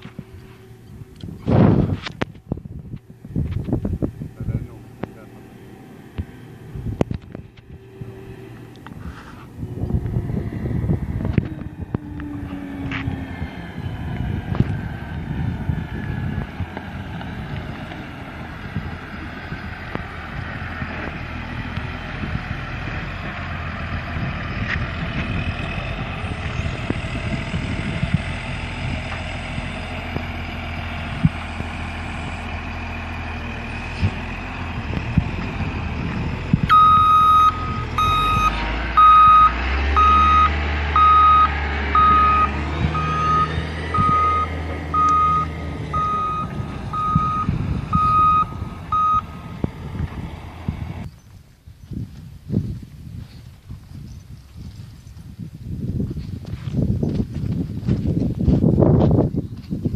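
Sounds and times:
wheel loader diesel engine: 0:00.0 - 0:59.9
reversing alarm beeping: 0:36.7 - 0:49.6.

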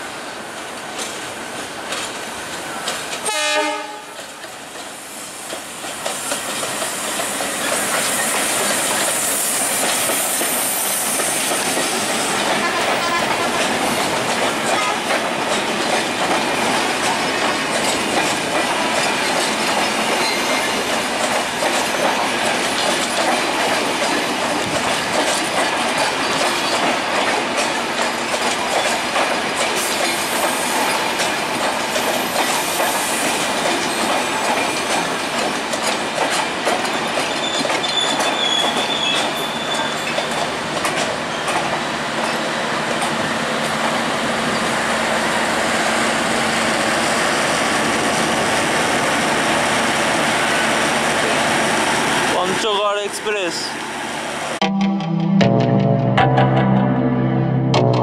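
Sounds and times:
train coaches rolling past: 0:00.0 - 0:54.6
wheels clicking over rail joints: 0:04.1 - 0:09.2, 0:11.2 - 0:44.8
high squeal of wheels on rail: 0:06.0 - 0:14.0, 0:19.0 - 0:23.2, 0:29.7 - 0:35.5, 0:36.8 - 0:42.5.

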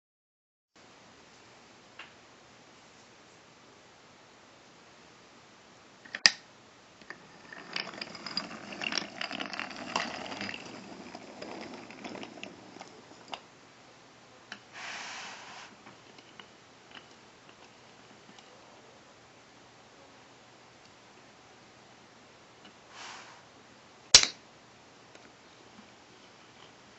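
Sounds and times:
toy train parts clattering: 0:06.1 - 0:06.4, 0:07.0 - 0:13.4, 0:15.4 - 0:18.5
short scrape: 0:14.8 - 0:15.8, 0:22.9 - 0:23.5
sharp click: 0:24.2 - 0:24.4.

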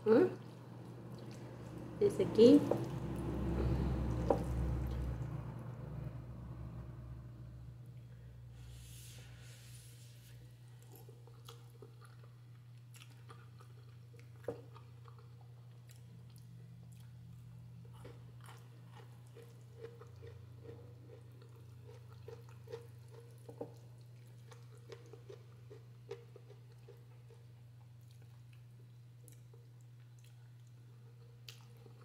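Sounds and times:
steady low hum: 0:00.0 - 0:32.0
person chewing: 0:00.4 - 0:01.9, 0:10.7 - 0:32.0.

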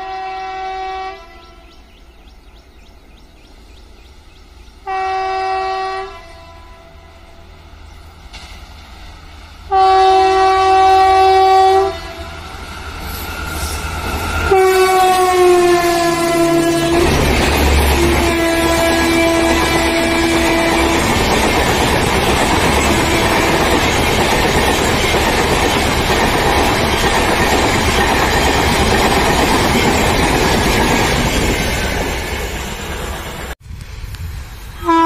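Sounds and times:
train horn: 0:00.0 - 0:01.8, 0:04.8 - 0:07.6, 0:09.7 - 0:12.6, 0:13.2 - 0:21.3, 0:22.8 - 0:23.8, 0:34.8 - 0:35.0
train wheels clattering over rails: 0:16.3 - 0:33.6.

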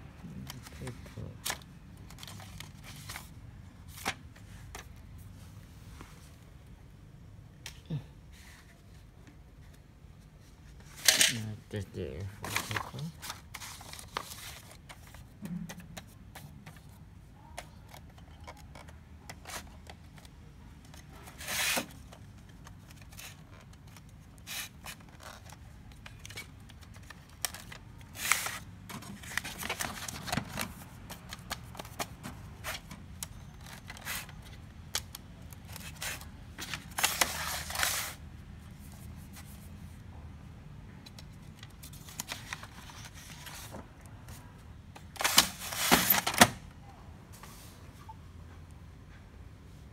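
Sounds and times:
paper rustling and scraping: 0:12.3 - 0:17.0, 0:21.0 - 0:34.6, 0:35.6 - 0:39.8, 0:41.6 - 0:44.4, 0:45.1 - 0:46.6.

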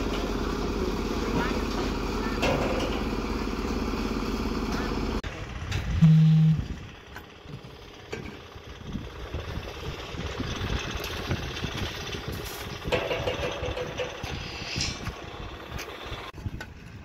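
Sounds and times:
loud low hum: 0:01.0 - 0:07.1
hoe and shovel scraping wet concrete: 0:14.1 - 0:15.2.

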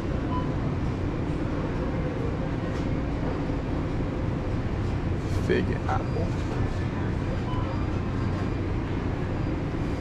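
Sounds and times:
supermarket background rumble: 0:00.0 - 0:10.0.

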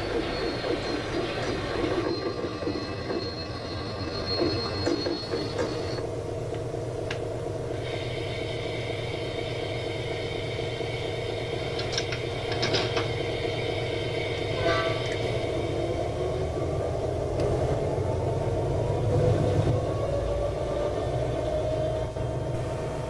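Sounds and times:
steady high tone: 0:00.0 - 0:17.2.

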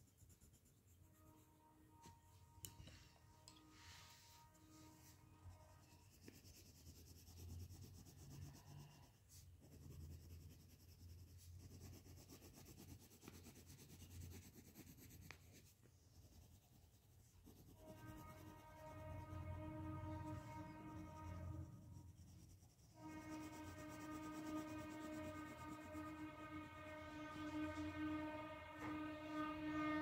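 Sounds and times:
pencil scratching on paper: 0:00.0 - 0:02.8, 0:04.1 - 0:29.5.

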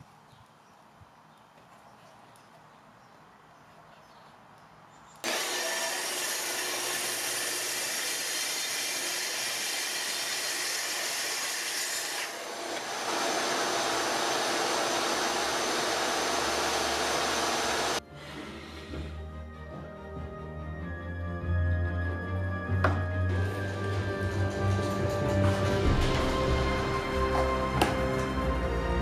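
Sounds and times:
track saw cutting wood: 0:05.2 - 0:19.1, 0:23.3 - 0:28.8.

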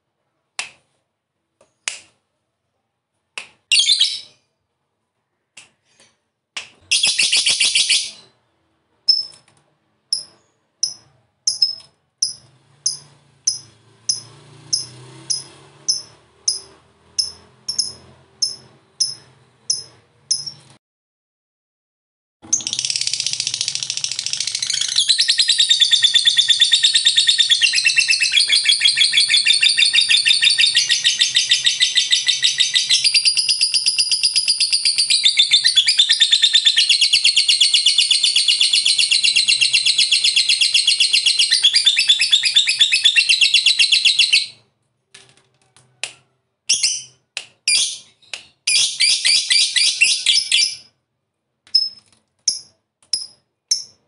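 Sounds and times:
lovebird chattering trill: 0:10.1 - 0:20.6.

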